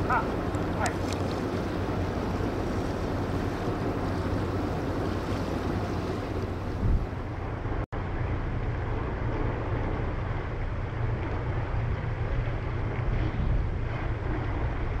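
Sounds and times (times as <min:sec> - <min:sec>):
ship engines rumbling: 0:00.0 - 0:15.0
wind buffeting microphone: 0:00.0 - 0:15.0.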